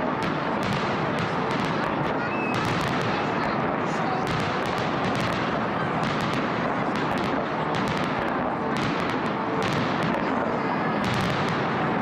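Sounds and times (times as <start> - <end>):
fireworks booming and crackling: 0.0 - 12.0.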